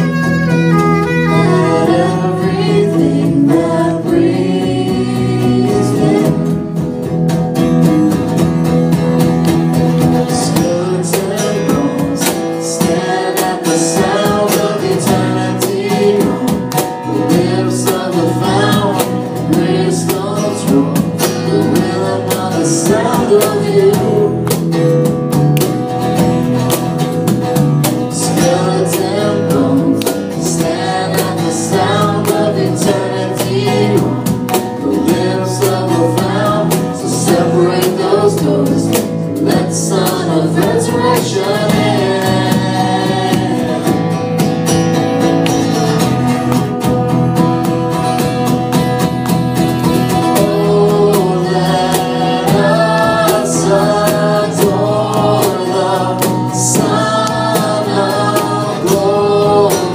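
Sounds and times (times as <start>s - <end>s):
strummed acoustic guitar: 0.0s - 59.9s
group singing a worship song: 1.4s - 7.2s, 8.0s - 44.7s, 48.1s - 59.9s.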